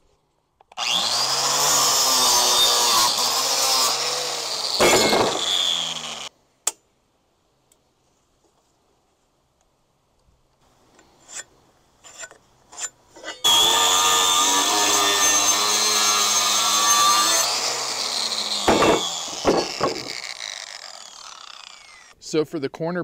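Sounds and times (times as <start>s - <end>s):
angle grinder cutting steel: 0.8s - 6.3s, 13.3s - 22.2s
sharp knocks: 18.7s - 20.2s.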